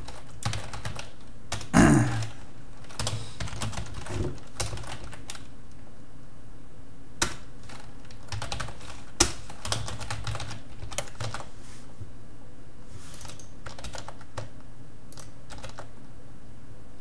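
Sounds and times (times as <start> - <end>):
typing on computer keyboard: 0.0 - 5.5, 7.2 - 11.5, 13.2 - 15.9.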